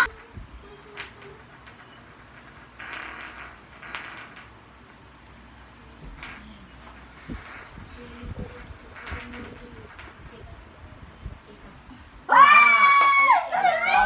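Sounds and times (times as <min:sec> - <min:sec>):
bottle scraping and clinking on tiles: 0:00.0 - 0:10.7.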